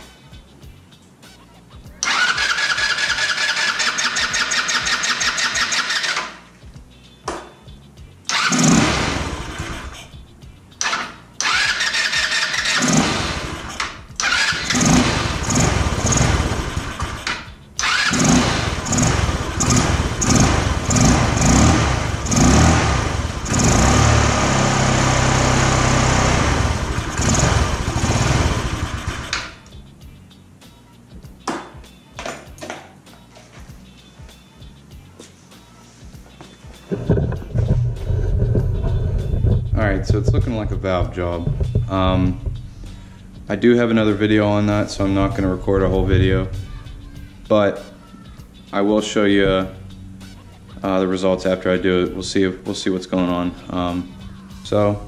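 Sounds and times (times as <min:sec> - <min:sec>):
scooter electric starter cranking: 0:02.0 - 0:06.4, 0:08.3 - 0:10.0, 0:10.8 - 0:29.7, 0:36.9 - 0:42.7
scooter engine running unevenly: 0:14.4 - 0:17.3, 0:18.0 - 0:29.5, 0:36.9 - 0:42.6.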